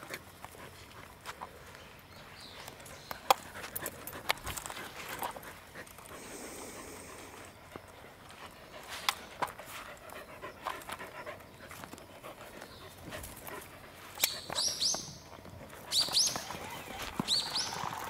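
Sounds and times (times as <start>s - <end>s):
movement on grass: 0.0s - 18.0s
dog panting: 2.8s - 14.6s
high rising squeaks: 15.9s - 18.0s.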